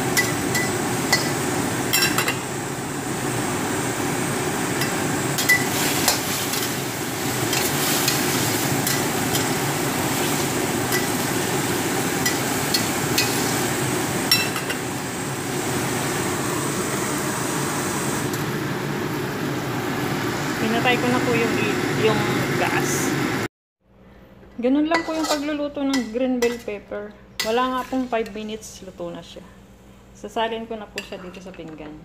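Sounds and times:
vegetables sizzling in a wok: 0:00.0 - 0:23.5, 0:25.0 - 0:28.9
metal spatula scraping a pan: 0:24.9 - 0:26.7.

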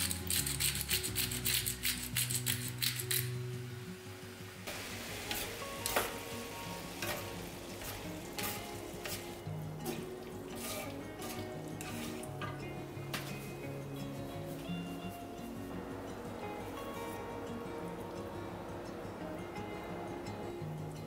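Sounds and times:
food sizzling in oil in a skillet: 0:00.0 - 0:12.5
soft background music: 0:00.0 - 0:21.0.

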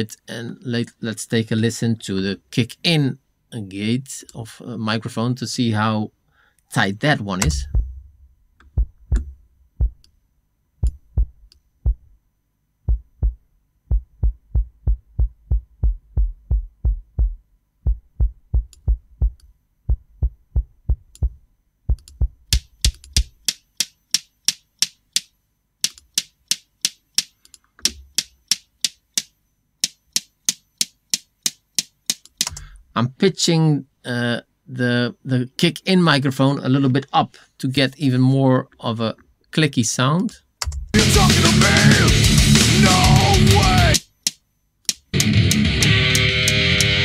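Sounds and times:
gated kick drum hits: 0:07.4 - 0:10.0, 0:10.8 - 0:12.1, 0:12.9 - 0:21.4.

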